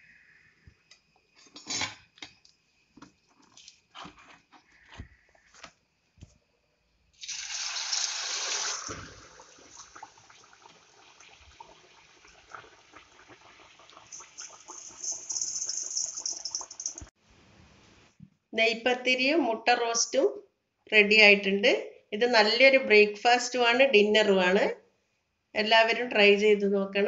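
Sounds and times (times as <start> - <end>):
dough frying in hot oil: 7.2 - 17.2.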